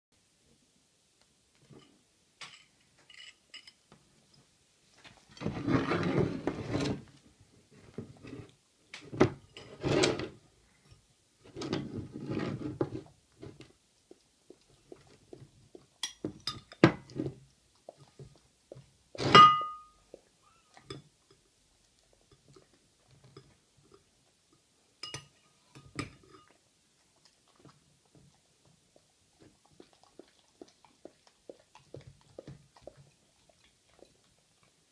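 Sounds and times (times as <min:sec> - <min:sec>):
dog licking food: 0:13.7 - 0:16.0, 0:17.4 - 0:19.1, 0:26.2 - 0:34.9.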